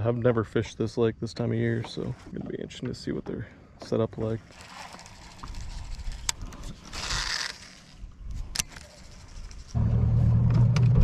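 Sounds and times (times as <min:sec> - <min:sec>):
electric trolling motor humming: 0:04.4 - 0:10.0
fishing reel clicks: 0:04.5 - 0:09.8.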